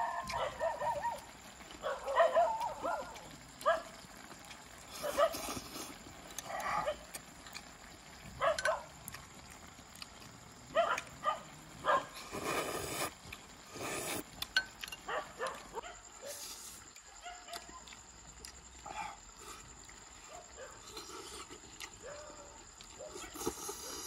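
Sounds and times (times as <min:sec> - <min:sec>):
wet chewing and smacking: 0:00.0 - 0:24.0
slurping broth from spoon: 0:04.9 - 0:06.0, 0:12.2 - 0:14.4, 0:23.2 - 0:24.0.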